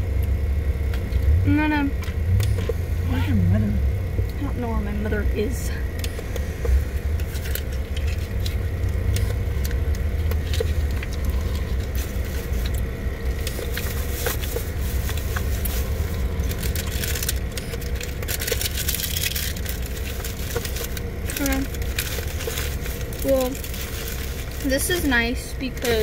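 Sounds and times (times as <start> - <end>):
car idling from inside: 0.0 - 26.0
packaging rustling: 7.2 - 25.2.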